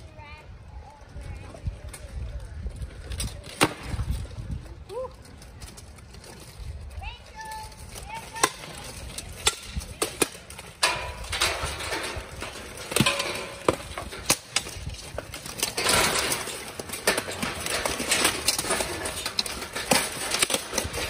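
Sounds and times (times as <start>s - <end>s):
armor clanking: 8.3s - 21.0s.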